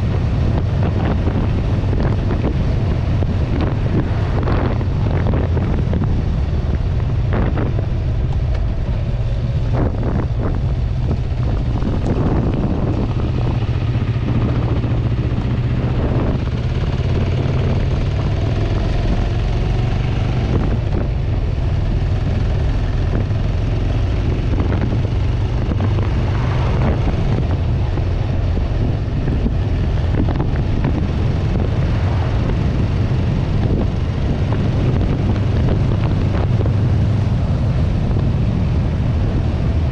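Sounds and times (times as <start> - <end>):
motorcycle engine cruising: 0.0 - 39.9
wind buffeting microphone: 0.0 - 39.9.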